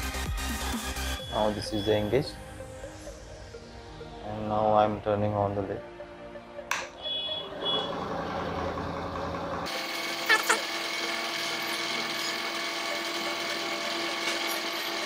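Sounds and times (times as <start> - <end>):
lathe motor whine: 7.1 - 15.0
gears and lead screw noise: 9.7 - 15.0.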